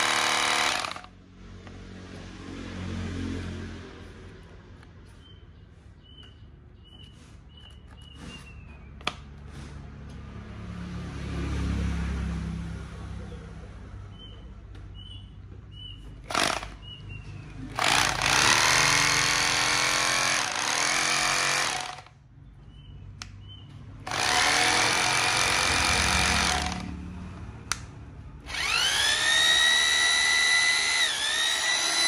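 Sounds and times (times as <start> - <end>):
hammer drill running: 0.0 - 1.1, 16.3 - 16.8, 17.7 - 22.1, 24.1 - 26.9, 28.4 - 32.0.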